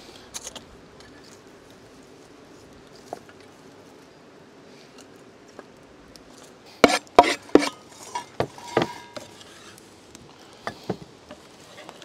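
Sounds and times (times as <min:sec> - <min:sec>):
knife and wooden boards clattering: 0:06.8 - 0:09.3.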